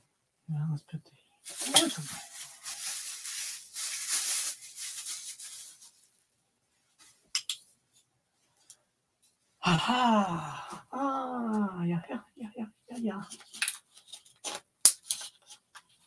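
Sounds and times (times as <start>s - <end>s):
packing wrap rustling: 1.4s - 6.2s.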